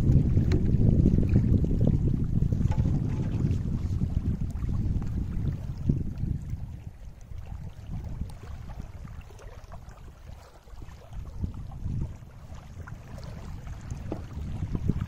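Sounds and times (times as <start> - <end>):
small waves lapping: 0.0 - 15.0
wind buffeting microphone: 0.0 - 15.0.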